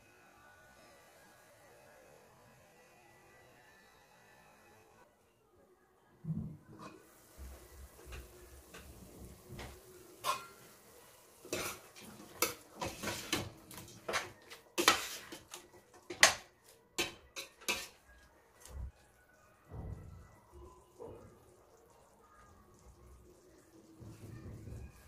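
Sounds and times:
metal spatula scraping a pot: 6.8s - 7.2s, 8.0s - 18.8s.

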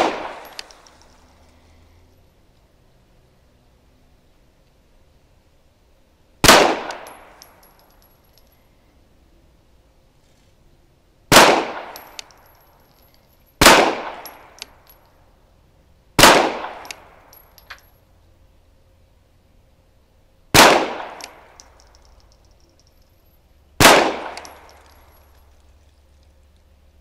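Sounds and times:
handgun shots with echo: 0.0s - 0.8s, 23.8s - 25.0s.

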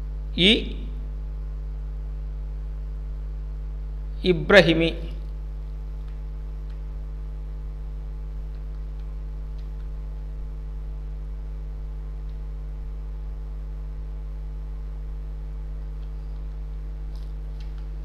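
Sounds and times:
electrical hum: 0.0s - 18.0s
faint clicks: 8.5s - 10.0s, 16.0s - 17.9s.

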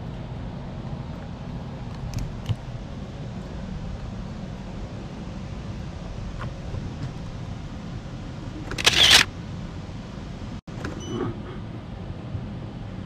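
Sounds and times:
low room hum: 0.0s - 13.0s
camera shutter clicks: 8.7s - 9.3s.

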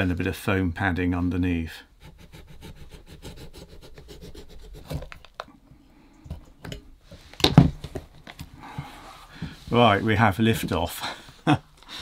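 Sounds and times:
knife scratching through leather seam: 2.0s - 5.2s.

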